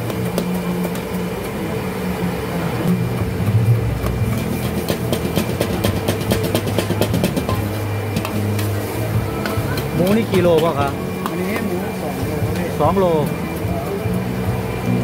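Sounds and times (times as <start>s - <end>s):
gas burner hum: 0.0s - 15.0s
metal ladle scraping a wok: 4.2s - 12.5s.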